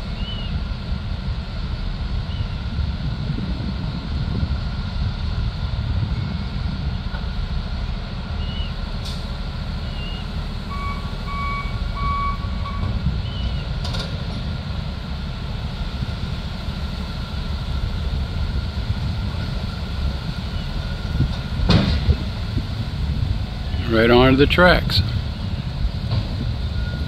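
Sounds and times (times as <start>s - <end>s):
diesel engines rumbling: 0.0s - 27.0s
vehicle backup alarm beeps: 9.9s - 13.6s, 26.7s - 27.0s.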